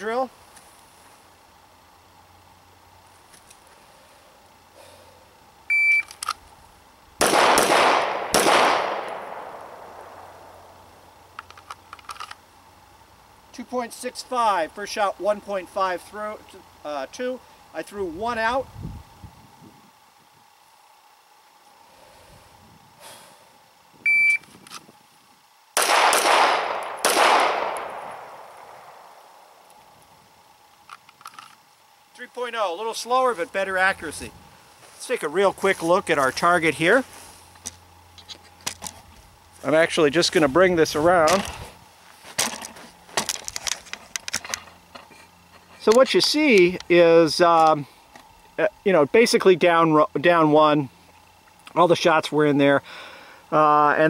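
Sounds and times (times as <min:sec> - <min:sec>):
shot timer beep: 0:05.7 - 0:06.1, 0:24.1 - 0:24.4
pistol shots echoing: 0:07.2 - 0:10.3, 0:25.8 - 0:29.1.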